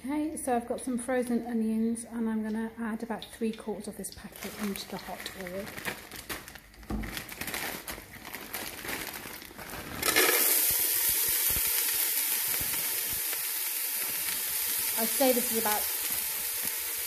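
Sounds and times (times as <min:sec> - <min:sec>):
plastic bag crinkling: 0:04.2 - 0:16.8
onions sizzling in hot oil: 0:09.8 - 0:17.0.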